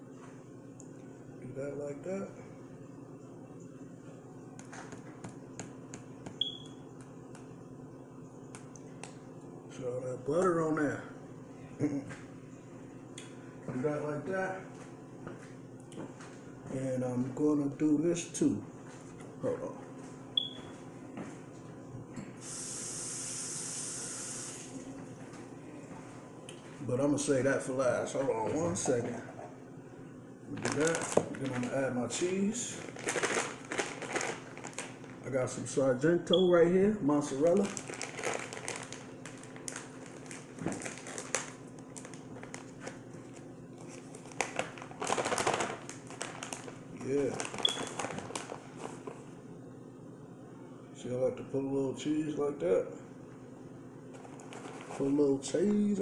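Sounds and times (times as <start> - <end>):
plastic bag snapping: 30.5 - 31.8, 32.8 - 35.2, 37.5 - 43.0, 44.1 - 48.6
plastic bag crinkling: 30.5 - 35.4, 37.3 - 49.2, 54.2 - 55.2.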